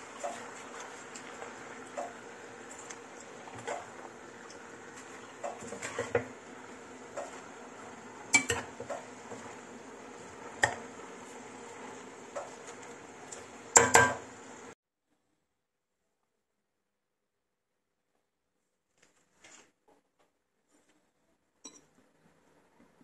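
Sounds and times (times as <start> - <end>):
spoon scraping a pot: 4.9 - 6.4, 8.3 - 9.6.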